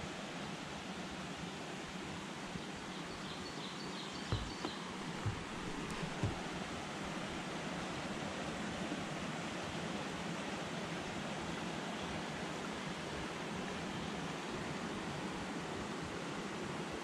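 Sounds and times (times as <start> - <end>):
water rushing through dam: 4.2 - 17.0.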